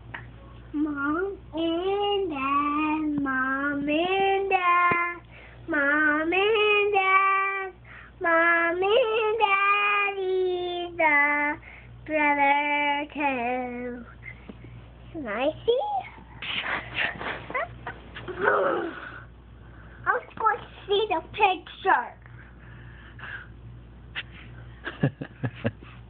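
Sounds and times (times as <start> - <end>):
young child singing: 0.8 - 14.1.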